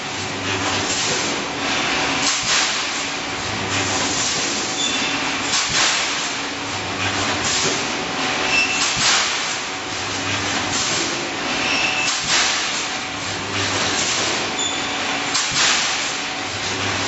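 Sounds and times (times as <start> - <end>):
welding machine mechanical din: 8.5 - 9.6, 10.6 - 12.8.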